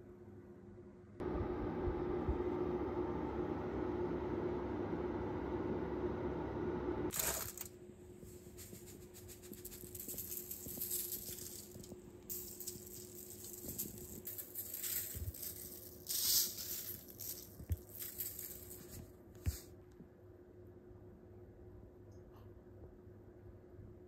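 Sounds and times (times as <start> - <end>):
faint steady hum: 0.0 - 24.0
seasoning sprinkling onto vegetables: 8.3 - 19.7.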